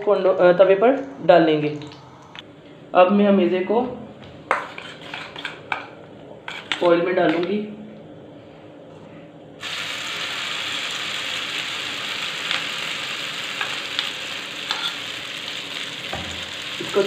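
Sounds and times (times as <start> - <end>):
spoon scraping steel bowl: 4.6 - 5.6
egg sizzling in hot oil: 9.6 - 17.0.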